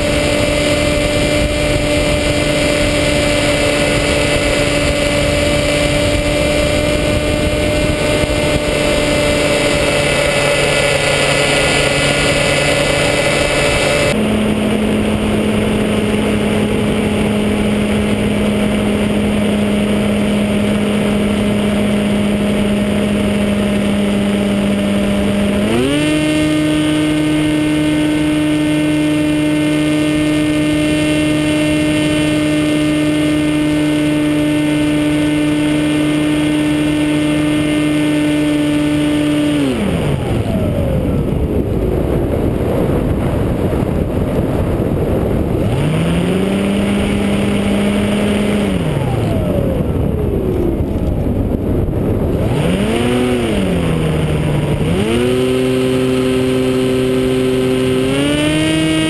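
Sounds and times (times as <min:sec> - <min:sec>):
model plane motor and propeller droning: 0:00.0 - 0:59.0
rush of airflow: 0:39.8 - 0:58.1.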